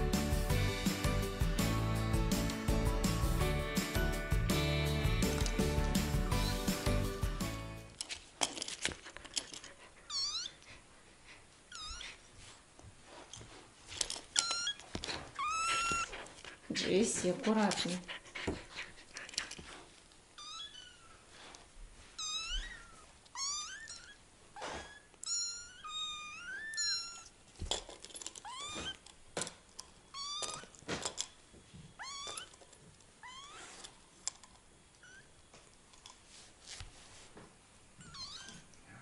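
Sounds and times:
kittens mewing: 0:11.7 - 0:12.2, 0:14.4 - 0:16.3, 0:22.2 - 0:27.3.

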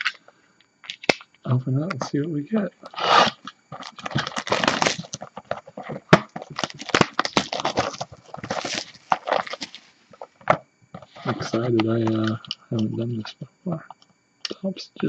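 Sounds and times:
plastic wrap crinkling: 0:02.8 - 0:12.9.

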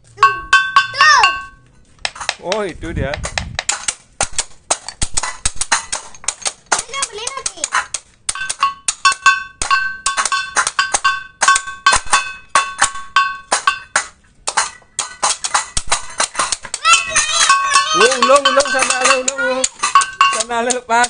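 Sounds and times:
metal percussion clashing: 0:00.1 - 0:21.0
child's voice: 0:00.2 - 0:01.5, 0:06.7 - 0:07.8, 0:16.7 - 0:18.2, 0:19.2 - 0:19.7.

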